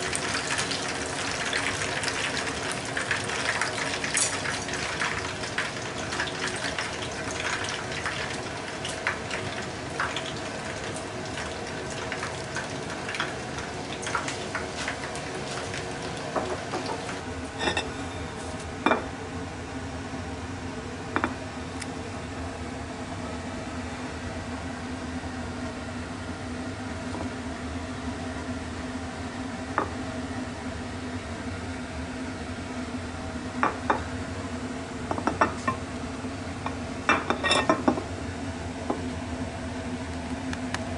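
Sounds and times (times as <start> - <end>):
frying oil sizzling and crackling: 0.0 - 19.0, 37.1 - 38.0.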